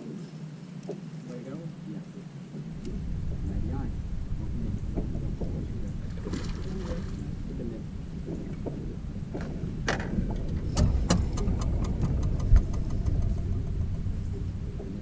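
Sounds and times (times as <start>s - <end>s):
low rumble: 2.4s - 15.0s
clicks and knocks on boat: 8.2s - 15.0s
loud thump: 9.9s - 14.6s.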